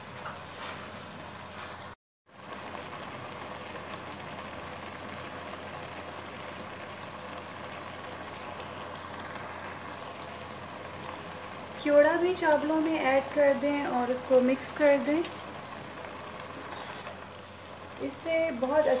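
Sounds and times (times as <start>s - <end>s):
pot simmering with bubbling hiss: 0.0s - 19.0s.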